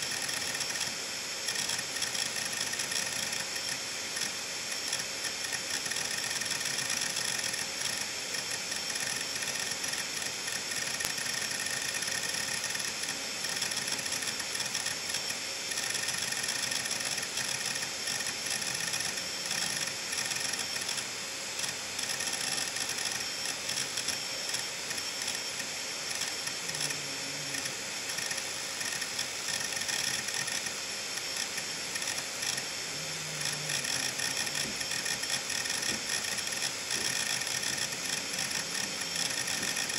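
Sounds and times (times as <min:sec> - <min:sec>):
hard drive platter whine: 0:00.0 - 0:39.9
hard drive head clicking: 0:01.5 - 0:39.9.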